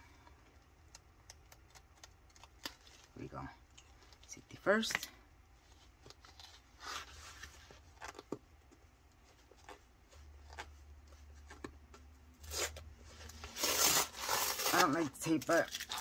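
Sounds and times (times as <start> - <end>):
package rustling: 12.4 - 16.0
blade cutting packaging tape: 13.5 - 15.0.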